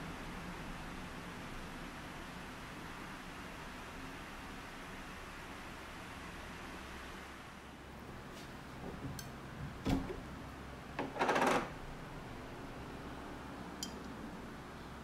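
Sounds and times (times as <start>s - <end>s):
small glass clink: 13.8s - 14.1s.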